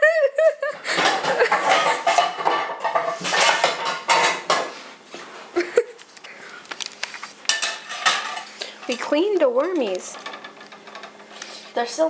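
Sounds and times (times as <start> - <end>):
bowl clattering and scraping: 0.9 - 5.3, 7.3 - 11.9.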